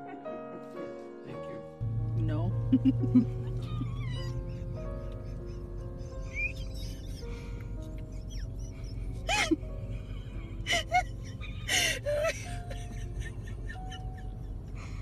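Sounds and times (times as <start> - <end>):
background music sustained notes: 0.0 - 15.0.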